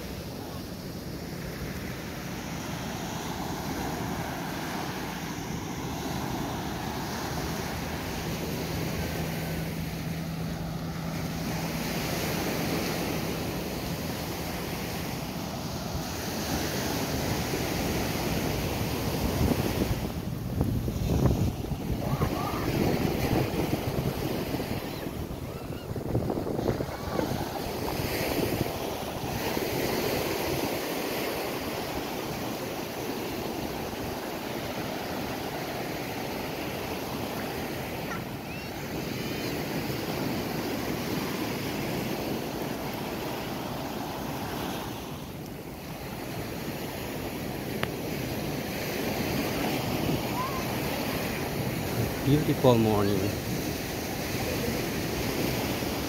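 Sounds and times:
surf washing onto beach: 0:00.0 - 0:56.0
wind buffeting microphone: 0:15.2 - 0:30.8.

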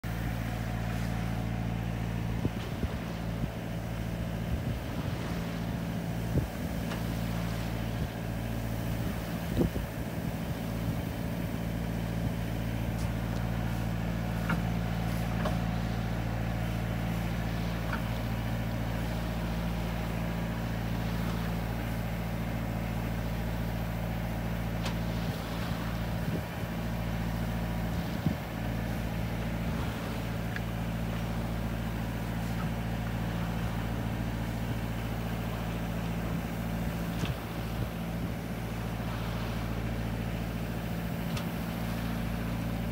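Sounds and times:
boat motor droning: 0:00.0 - 0:42.9
knocks against hull: 0:14.4 - 0:15.8.

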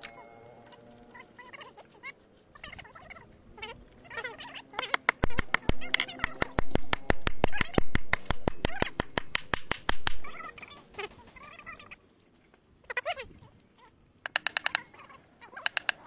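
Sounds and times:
hammer tapping on metal: 0:05.0 - 0:10.2.

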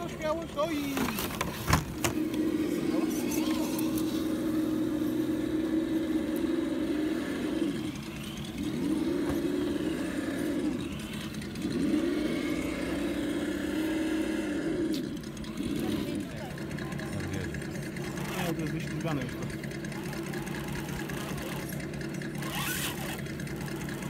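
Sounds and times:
toy truck motor and gears whining: 0:00.0 - 0:24.0.

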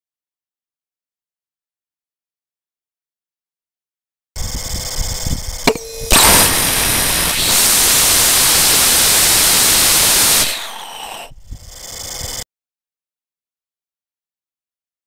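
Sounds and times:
click: 0:05.7 - 0:06.4
rocket engine ignition bang: 0:05.7 - 0:11.3
rocket engine rushing hiss: 0:06.0 - 0:11.4.

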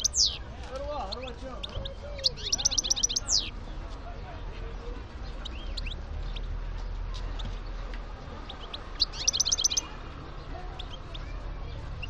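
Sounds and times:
goldfinch chirps: 0:00.0 - 0:00.4, 0:01.1 - 0:03.5, 0:08.5 - 0:09.9.

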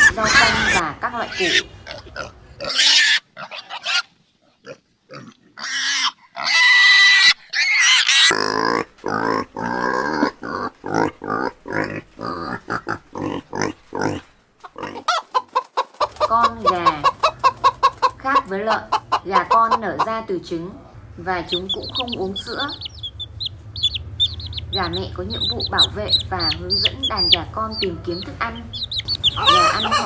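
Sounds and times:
pig grunts: 0:00.0 - 0:15.2
pigs squealing: 0:00.0 - 0:15.3, 0:16.2 - 0:20.2, 0:21.5 - 0:30.0.

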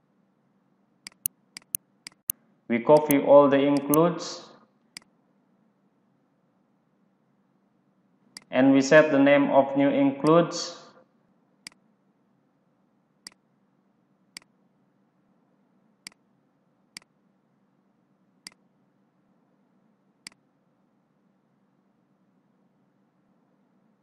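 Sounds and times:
faint steady hum: 0:00.0 - 0:24.0
computer clicks: 0:01.1 - 0:02.4, 0:03.0 - 0:03.2, 0:03.8 - 0:04.0.

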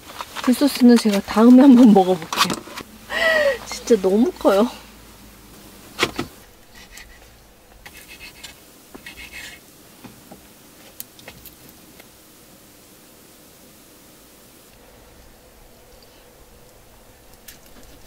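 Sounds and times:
knife scraping on cutting board: 0:06.7 - 0:09.6.

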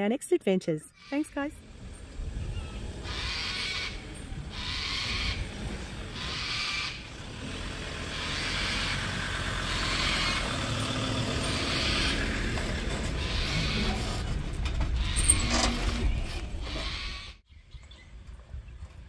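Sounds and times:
vehicle engine running: 0:01.6 - 0:16.6.

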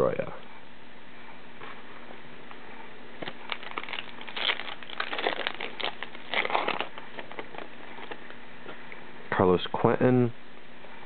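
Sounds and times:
wrapper crinkling and tearing: 0:03.2 - 0:08.3.

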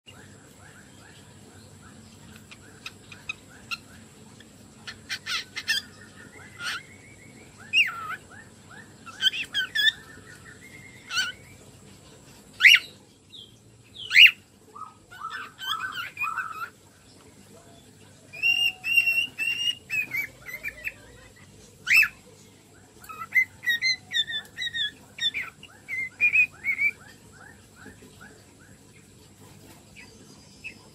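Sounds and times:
cockatiel chirping and whistling: 0:07.6 - 0:10.1, 0:14.1 - 0:16.7, 0:18.4 - 0:21.0, 0:23.0 - 0:28.0.

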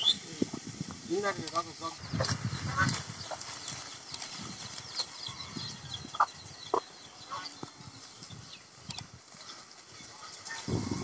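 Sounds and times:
faint bird chirps: 0:00.0 - 0:00.4
chickens clucking: 0:00.0 - 0:11.0
leafy branches rustling and snapping: 0:00.9 - 0:05.1.

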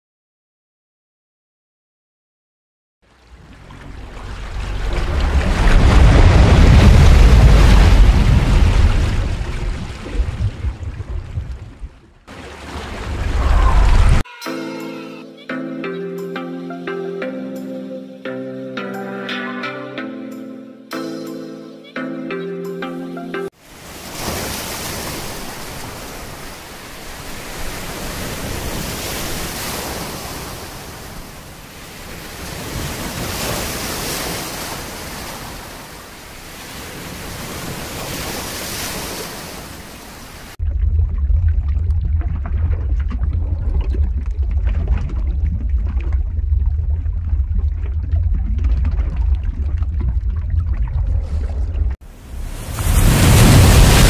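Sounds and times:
wind: 0:03.0 - 0:14.4, 0:23.6 - 0:54.0
sea waves: 0:03.0 - 0:15.4, 0:23.5 - 0:40.6, 0:41.9 - 0:54.0
heavy low rumble: 0:03.5 - 0:09.0, 0:40.6 - 0:54.0.

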